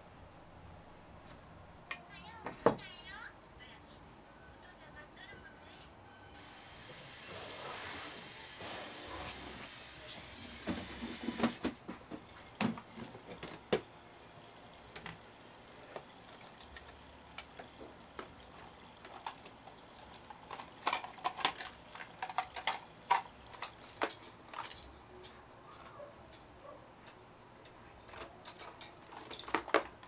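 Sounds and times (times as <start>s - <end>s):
clicks and knocks of objects: 16.0s - 30.0s.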